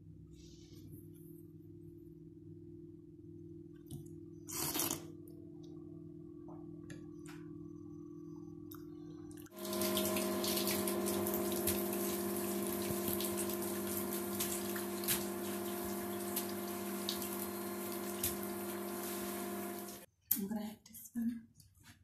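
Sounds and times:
mechanical hum: 0.0s - 20.1s
water running into bathtub: 9.5s - 20.1s.

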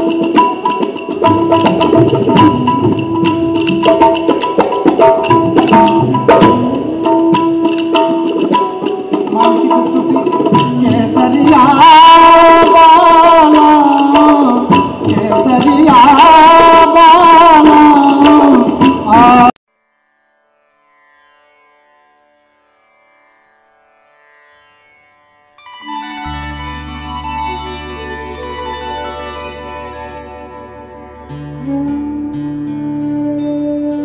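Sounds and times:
tabla and hand drums: 0.0s - 19.6s, 25.9s - 34.0s
held melodic drone note: 25.6s - 34.0s
person singing wavering note: 25.8s - 34.0s.

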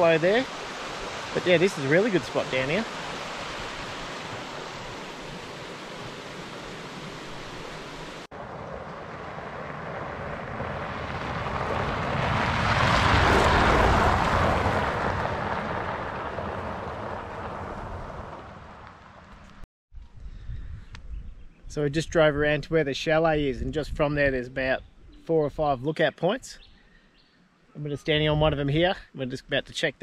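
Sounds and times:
steady outdoor rush: 0.0s - 20.2s
car driving past on gravel: 8.1s - 19.6s.

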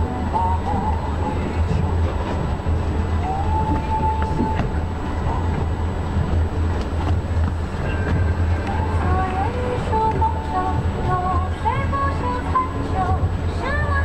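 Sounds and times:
train wheels rumbling on track: 0.0s - 14.0s.

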